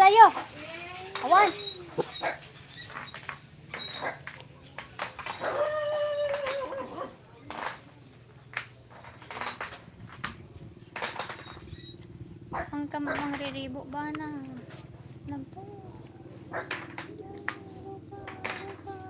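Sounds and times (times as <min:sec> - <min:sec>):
puppy whining: 0:00.7 - 0:03.0, 0:05.4 - 0:07.1.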